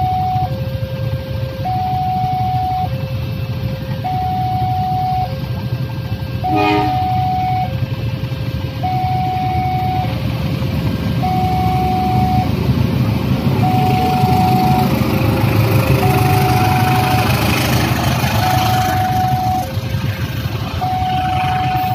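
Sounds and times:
level crossing two-tone alarm: 0.0 - 5.4, 6.2 - 7.8, 8.8 - 10.2, 11.2 - 12.6, 13.6 - 15.1, 15.8 - 19.9, 20.5 - 21.9
diesel locomotive: 0.0 - 21.9
vehicles idling: 0.0 - 21.9
horn toot: 6.4 - 7.7.

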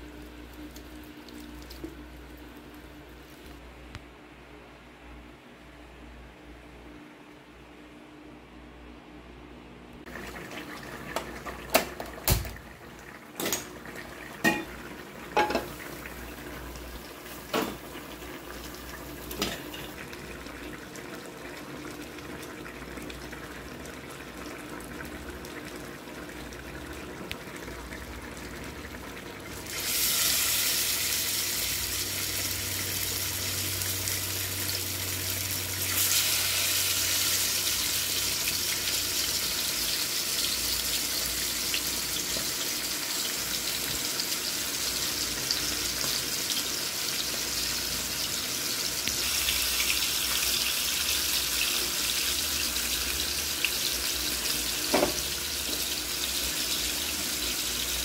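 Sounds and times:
dishes and utensils clacking: 14.4 - 14.7, 15.4 - 15.7
tap running into sink: 54.9 - 55.3.

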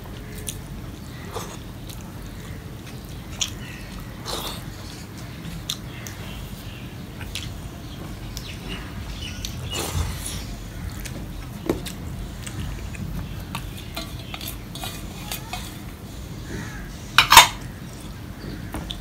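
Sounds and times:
fingers mixing food on steel plate: 10.8 - 17.7
steel bowl clanking onto bowl: 17.2 - 17.6.

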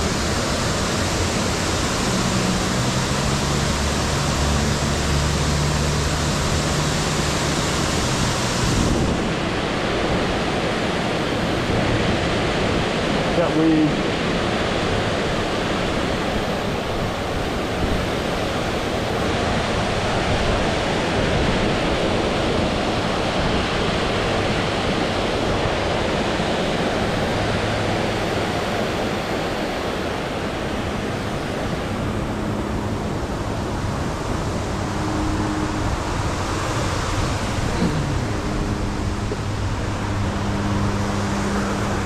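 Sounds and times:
water rushing over dam into rapids: 0.0 - 42.0.

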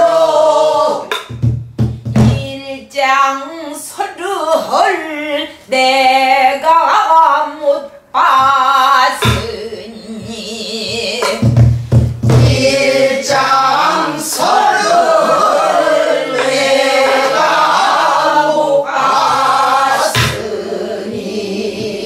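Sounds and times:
barrel drum strokes: 1.1 - 2.5, 9.2 - 14.7, 19.2 - 22.0
person singing with vibrato: 2.4 - 11.6.

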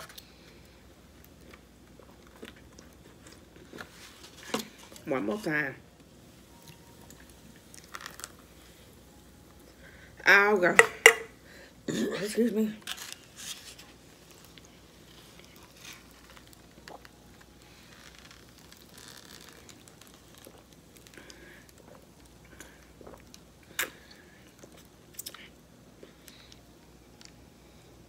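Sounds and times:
person chewing: 1.2 - 4.5, 14.2 - 26.6.

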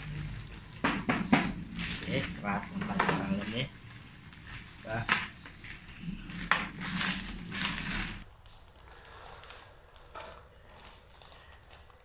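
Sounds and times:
paper packing rustling: 0.0 - 8.2
plastic mailer crinkling: 0.0 - 8.2.

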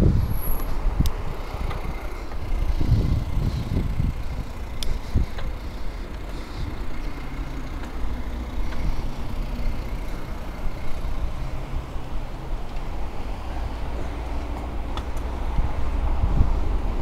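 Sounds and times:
bicycle tyres rumbling on bricks: 0.0 - 11.7
traffic passing: 0.0 - 17.0
wind: 0.0 - 17.0.

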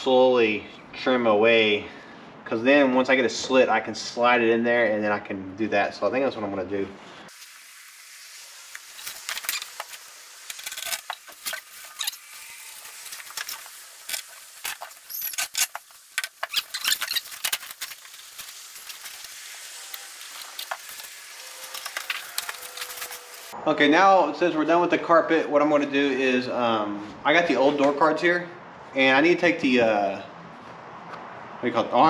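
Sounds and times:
clicks and scrapes: 13.0 - 19.1.

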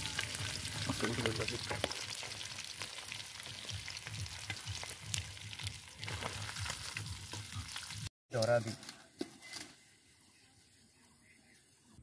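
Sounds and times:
fish sizzling in hot oil: 0.0 - 8.1.

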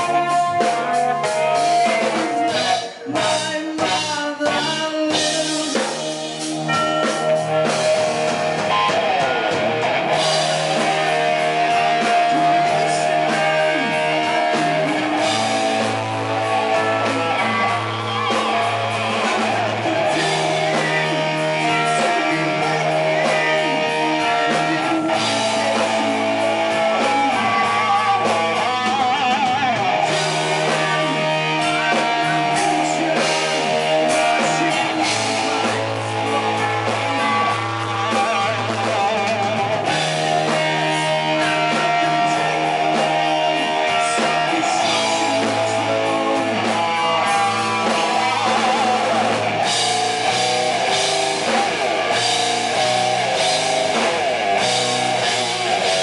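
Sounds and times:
bass line: 0.0 - 56.0
electric guitar: 0.0 - 56.0
rock band playing: 0.0 - 56.0.

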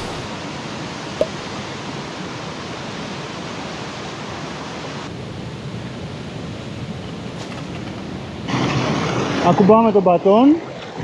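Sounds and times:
stream cascading over rocks: 0.0 - 5.1.

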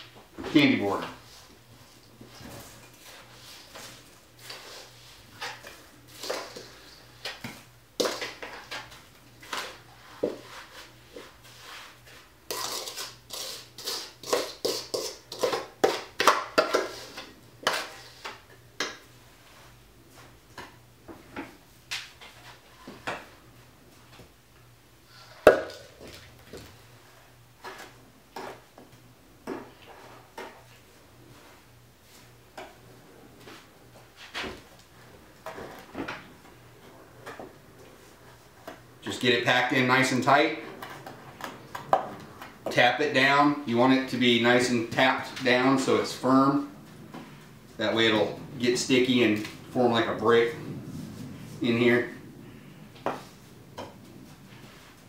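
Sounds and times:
utensil scraping metal bowl: 12.5 - 16.1.

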